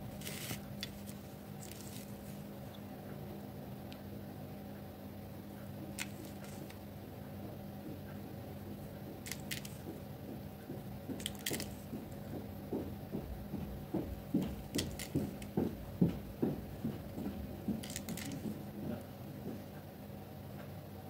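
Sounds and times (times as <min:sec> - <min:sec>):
glitter crunching and scraping: 0:00.0 - 0:02.4
gloved hand handling noise: 0:00.0 - 0:02.8, 0:05.8 - 0:06.9, 0:09.1 - 0:12.5, 0:13.2 - 0:19.0.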